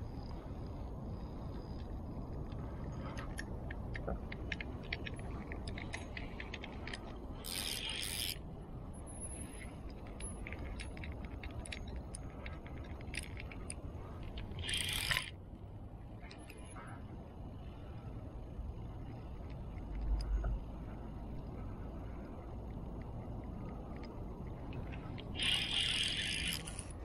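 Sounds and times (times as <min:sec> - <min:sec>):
low wind rumble: 0:00.0 - 0:27.0
fishing tackle clicking: 0:25.2 - 0:27.0.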